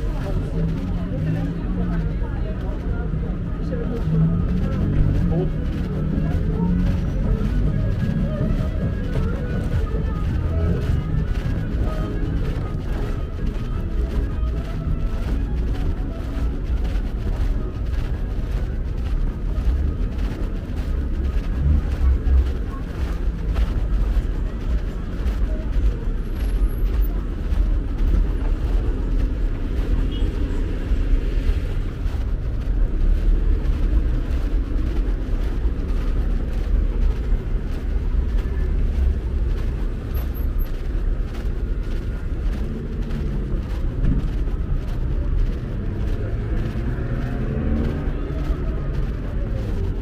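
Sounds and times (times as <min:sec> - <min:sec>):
faint voices of passers-by: 0:00.0 - 0:50.0
low rumble of car traffic: 0:00.0 - 0:50.0.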